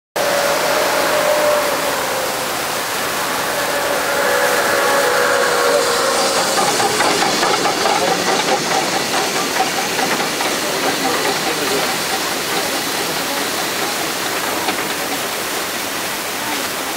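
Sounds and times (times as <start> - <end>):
steam locomotive hissing: 0.2 - 16.9
rhythmic engine beat: 5.8 - 15.5.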